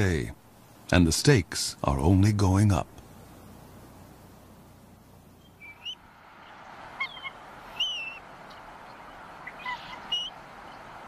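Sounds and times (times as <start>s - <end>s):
eagles chirping: 5.2s - 11.0s.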